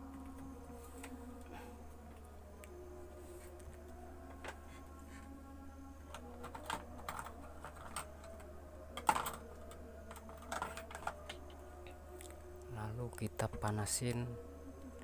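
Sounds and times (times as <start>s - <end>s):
small tools clicking and tapping: 6.1s - 11.5s
objects clattering: 6.1s - 11.6s.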